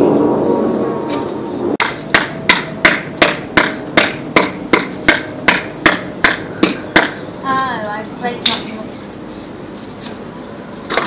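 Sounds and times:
bird chirps: 0.7s - 2.1s, 3.0s - 5.3s, 7.2s - 9.6s, 10.5s - 11.0s
hammer blows: 1.0s - 7.2s.

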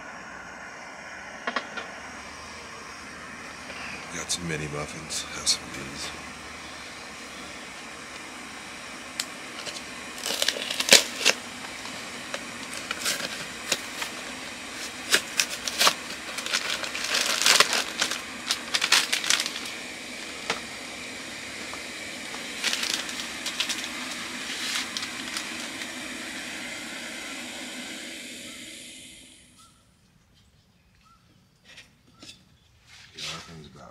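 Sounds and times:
cardboard box and wrapper crackling: 9.6s - 19.9s, 22.4s - 26.0s.

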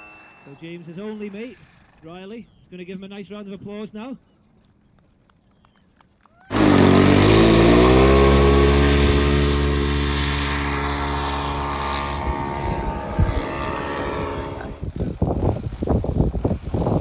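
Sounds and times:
model aircraft engine running: 6.5s - 17.0s.

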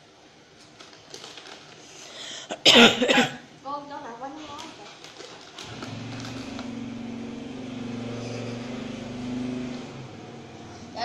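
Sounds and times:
low engine hum: 5.6s - 10.9s.

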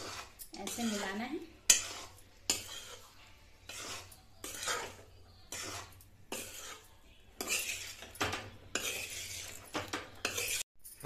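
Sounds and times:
steel spoon scraping a pan: 0.0s - 10.7s.

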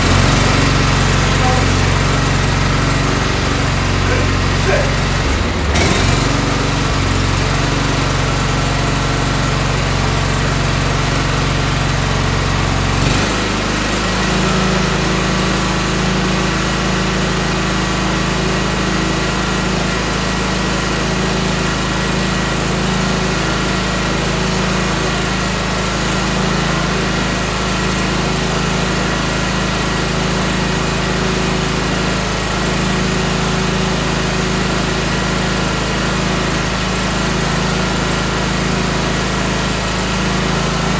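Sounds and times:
tractor engine running: 0.0s - 16.0s, 22.6s - 40.9s.

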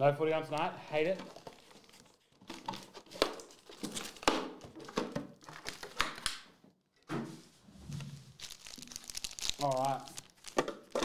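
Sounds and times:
plastic packaging crinkling: 0.6s - 6.2s, 8.3s - 11.0s.

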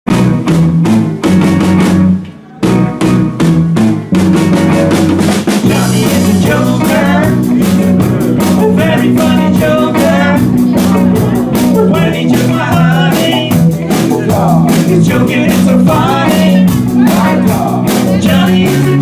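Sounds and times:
rock band playing: 0.1s - 19.0s
man singing: 5.6s - 19.0s.

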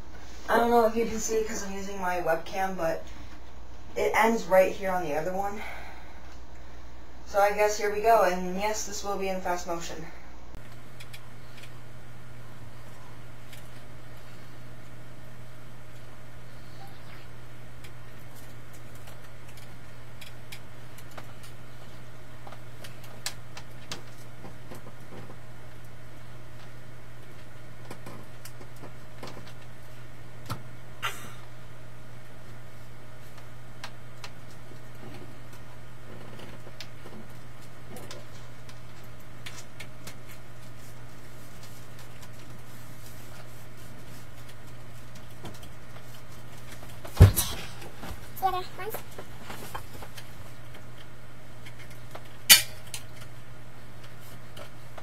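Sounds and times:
low electrical hum: 0.0s - 55.0s
faint clicks and taps: 33.2s - 43.2s.

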